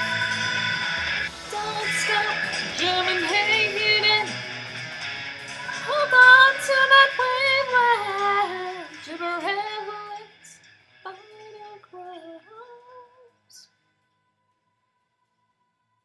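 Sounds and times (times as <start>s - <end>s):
woman singing: 0.0s - 4.4s, 5.7s - 13.7s
backing music: 0.0s - 12.0s.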